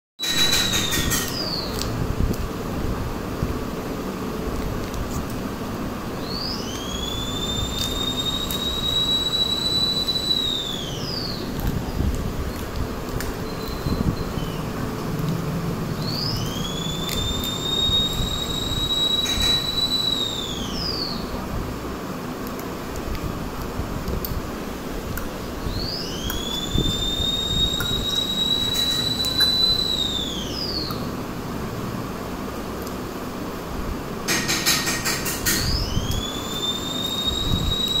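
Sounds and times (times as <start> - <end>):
high whistle-like tone: 6.2 - 11.5, 16.0 - 21.3, 25.7 - 31.0, 35.5 - 38.0.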